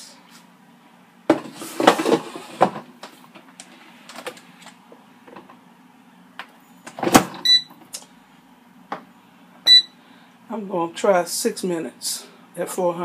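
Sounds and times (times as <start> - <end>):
air fryer drawer scraping: 1.3 - 2.9
short electronic beep: 9.7 - 9.9.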